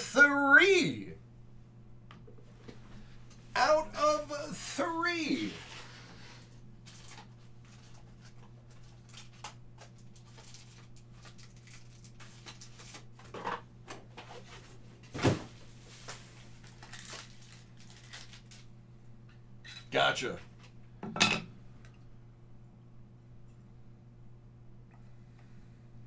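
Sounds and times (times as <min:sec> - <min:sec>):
steady low hum: 0:00.0 - 0:10.2.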